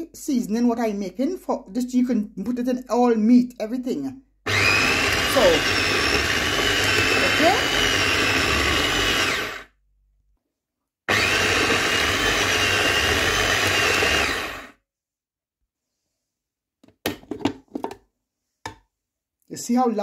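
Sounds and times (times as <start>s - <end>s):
food processor motor whining: 4.5s - 9.8s, 11.1s - 14.8s.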